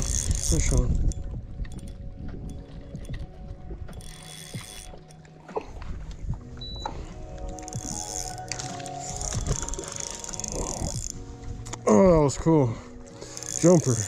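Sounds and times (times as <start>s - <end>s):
fishing reel gears whirring: 0.0s - 5.2s, 7.4s - 11.2s, 13.0s - 14.0s
reel ticking: 0.0s - 5.3s, 7.4s - 11.2s, 13.0s - 14.0s.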